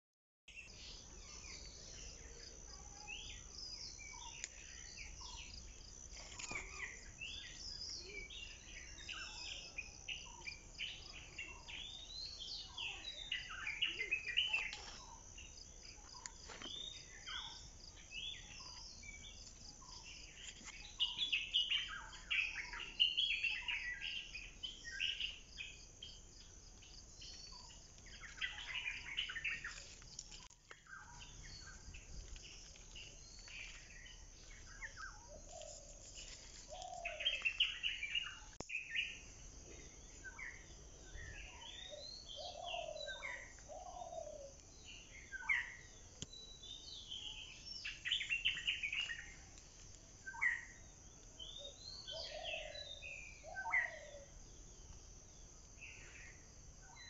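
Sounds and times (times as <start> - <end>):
birds chirping: 0.5 - 57.0
insect drone: 0.6 - 57.0.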